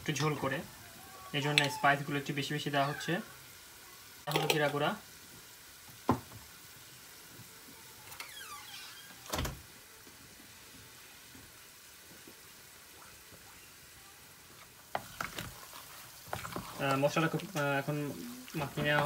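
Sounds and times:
faint steady hiss: 0:00.0 - 0:19.0
faint high squeak: 0:08.1 - 0:09.3.

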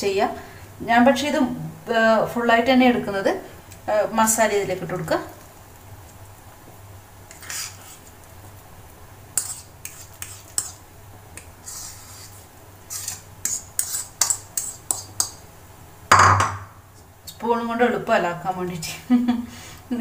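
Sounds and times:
spoon scraping a bowl: 0:07.3 - 0:08.1, 0:09.4 - 0:10.8, 0:11.4 - 0:15.4
loud knock: 0:16.1 - 0:16.7.

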